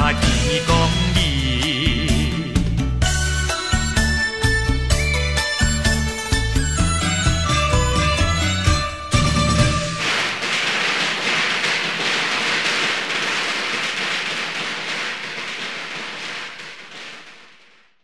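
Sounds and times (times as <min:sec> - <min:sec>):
firecrackers crackling: 0:09.2 - 0:18.0.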